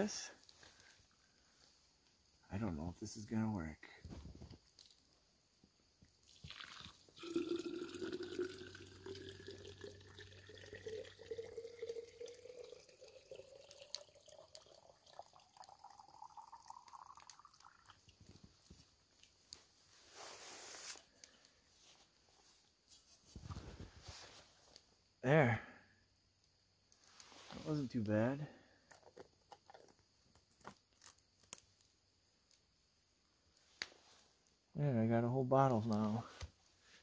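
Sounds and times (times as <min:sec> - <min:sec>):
water pouring into a bottle: 0:06.2 - 0:18.6.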